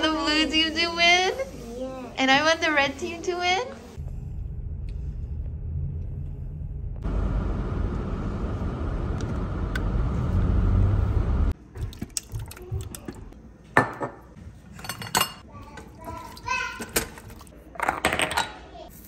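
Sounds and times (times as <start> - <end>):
car road and wind noise: 7.0 - 11.5.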